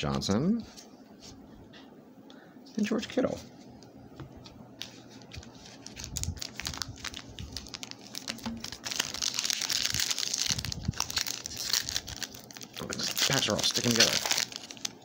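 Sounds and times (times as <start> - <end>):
foil wrapper crinkling: 4.9 - 15.0.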